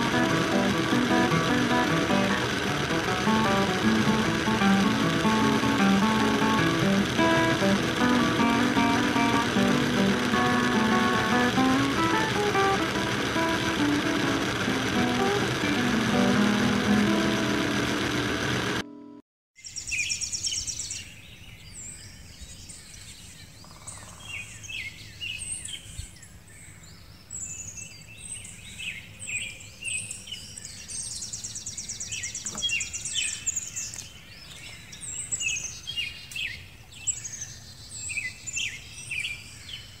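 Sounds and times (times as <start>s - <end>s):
songbirds singing: 19.6s - 40.0s.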